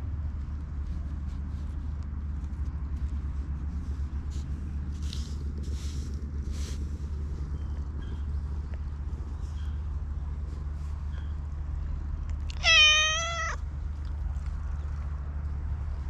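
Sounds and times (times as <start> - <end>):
steady low rumble: 0.0 - 16.0
hand brushing cat fur: 0.2 - 12.0.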